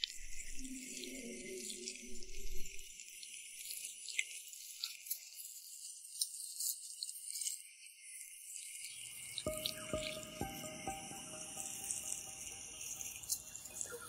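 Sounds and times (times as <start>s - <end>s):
music with struck ringing notes: 9.5s - 14.0s.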